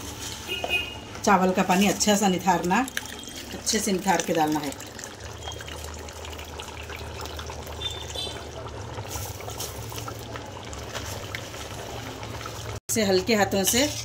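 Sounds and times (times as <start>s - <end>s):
rice pouring into liquid: 2.6s - 12.8s.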